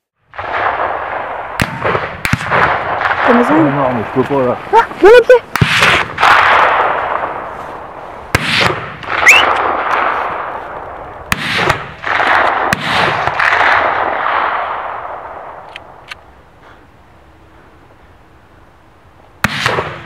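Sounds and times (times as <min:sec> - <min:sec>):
gunshots echoing: 0:00.3 - 0:04.6, 0:05.5 - 0:15.7, 0:19.4 - 0:20.0.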